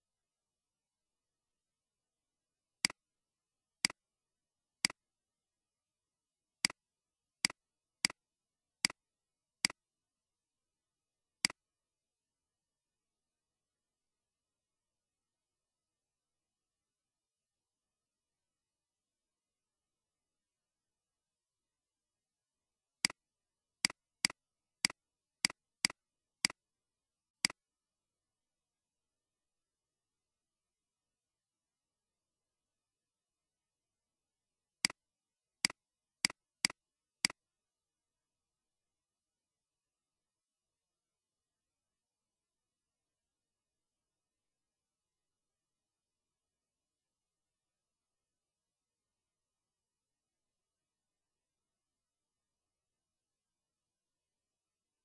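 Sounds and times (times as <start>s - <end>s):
computer mouse clicks: 27.4s - 27.6s.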